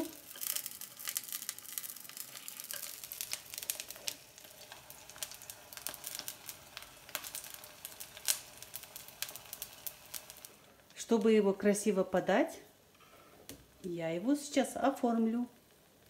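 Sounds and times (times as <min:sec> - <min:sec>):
spatula scraping pan: 0:00.0 - 0:04.8
egg sizzling in oil: 0:00.0 - 0:10.8.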